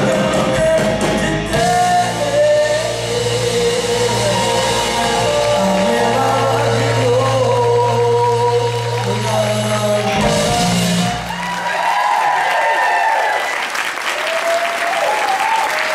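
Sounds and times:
person singing: 0.0s - 11.4s
live rock band: 0.0s - 11.8s
crowd cheering and shouting: 2.9s - 15.9s.

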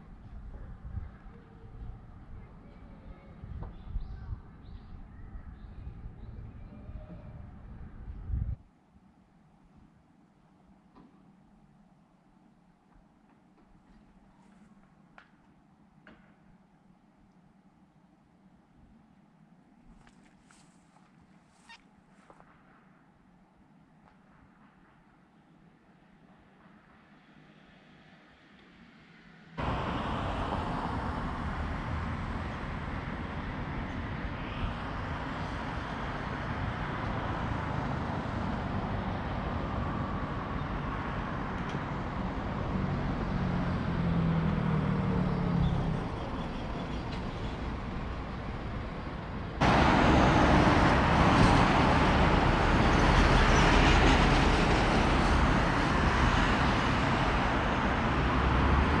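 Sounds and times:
passing cars rumbling: 29.6s - 59.0s
vehicle hum: 29.6s - 59.0s.

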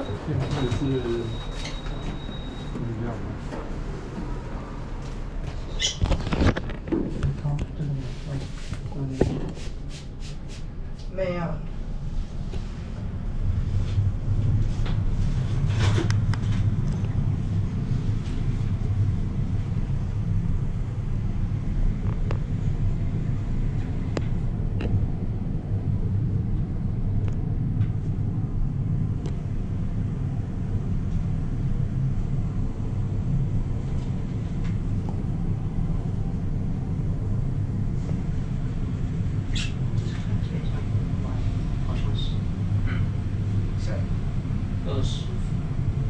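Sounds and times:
elevator rumble: 0.0s - 9.6s, 11.2s - 46.0s.

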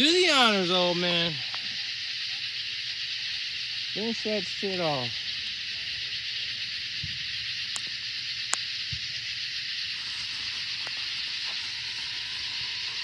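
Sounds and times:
steady high hiss: 0.0s - 13.0s
firework fuse burning: 6.2s - 13.0s
sharp clicks: 7.7s - 8.7s.

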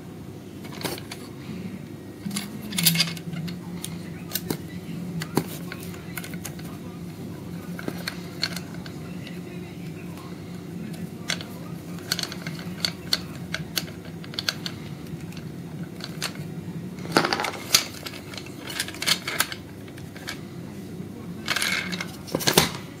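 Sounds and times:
parts clattering: 0.6s - 20.6s, 21.4s - 23.0s
metal and plastic parts clicking: 7.8s - 9.0s, 11.2s - 16.4s, 17.1s - 20.4s.

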